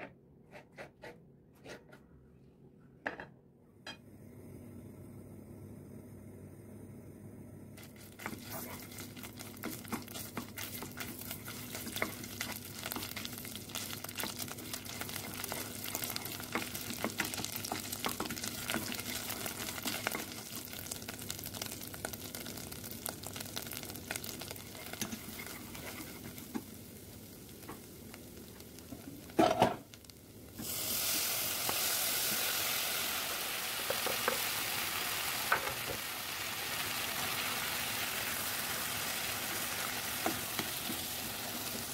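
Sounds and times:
wooden spatula stirring: 0:07.8 - 0:20.6, 0:24.1 - 0:26.7
pepper paste sizzling in hot oil: 0:07.8 - 0:41.9.

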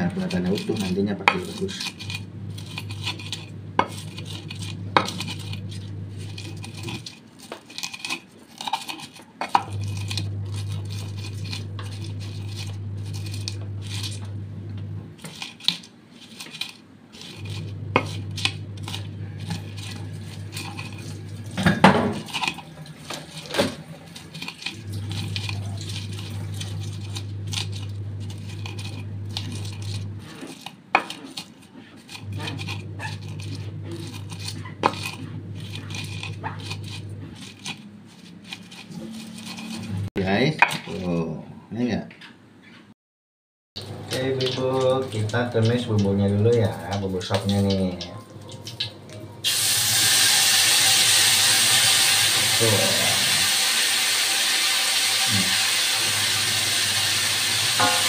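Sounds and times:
low steady hum: 0:00.0 - 0:07.2, 0:09.5 - 0:15.7, 0:17.2 - 0:30.6, 0:32.0 - 0:40.2
pestle grinding in mortar: 0:00.0 - 0:41.0.

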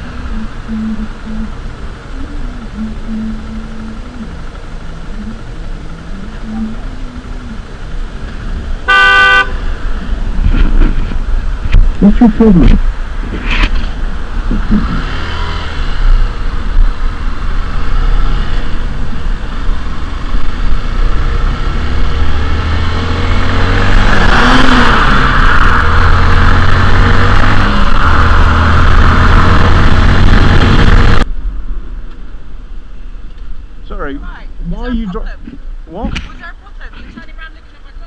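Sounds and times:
wind on helmet microphone: 0:10.0 - 0:15.0.

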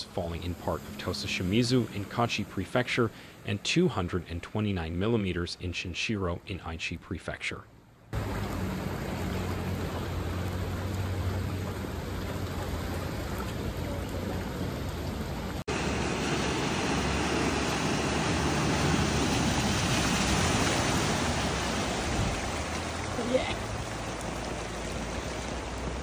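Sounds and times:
floodwater rushing: 0:00.0 - 0:05.7, 0:07.9 - 0:26.0
rain: 0:07.9 - 0:26.0.

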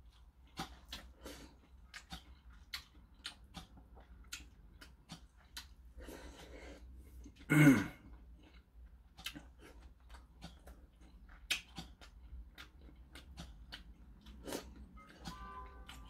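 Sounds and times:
wet chewing and smacking: 0:00.0 - 0:16.0
raspy throat sound: 0:07.4 - 0:08.1.

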